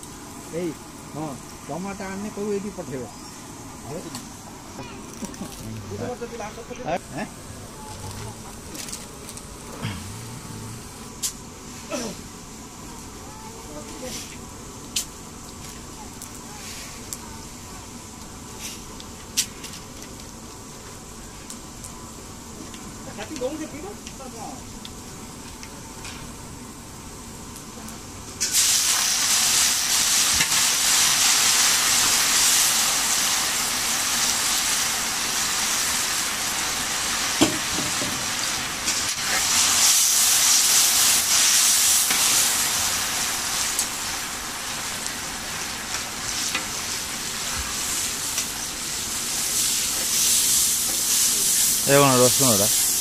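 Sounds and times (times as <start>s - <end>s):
hot oil sizzling: 0.0s - 53.0s.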